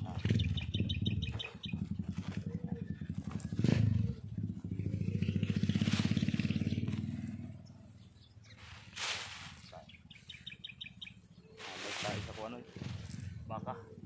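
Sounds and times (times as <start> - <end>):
small engine running: 0.0 - 7.6
shovel tipping rice bran: 8.6 - 9.8, 11.6 - 13.3.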